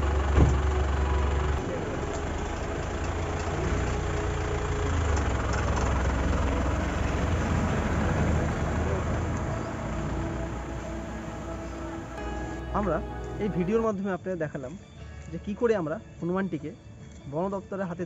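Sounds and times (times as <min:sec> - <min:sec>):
diesel engine rumbling: 0:00.0 - 0:17.0.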